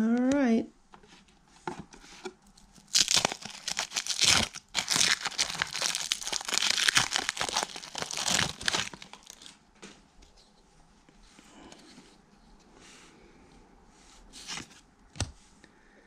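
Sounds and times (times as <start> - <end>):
foil wrapper crinkling and tearing: 2.6 - 9.5.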